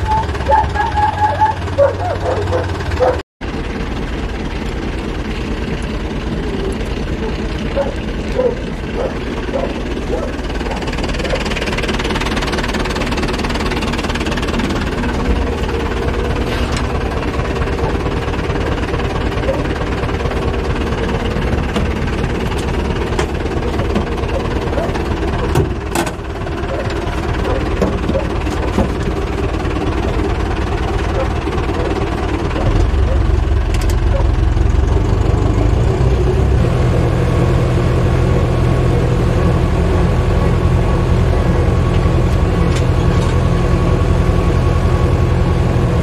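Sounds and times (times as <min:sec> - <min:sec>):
tractor diesel engine running: 0:00.0 - 0:46.0.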